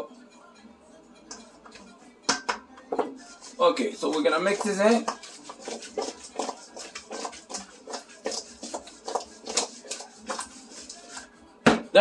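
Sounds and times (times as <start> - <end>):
chicken wings slapping in a bowl: 4.0 - 11.3.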